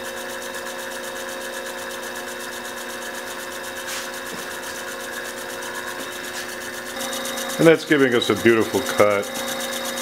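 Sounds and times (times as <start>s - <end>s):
milling machine motor whine: 0.0s - 10.0s
pulsing hiss of cutting: 7.0s - 10.0s.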